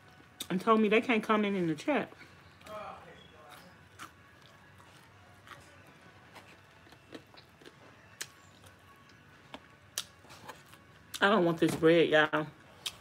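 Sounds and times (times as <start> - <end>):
chewing and eating sounds: 0.0 - 0.9, 1.5 - 11.2, 12.6 - 13.0.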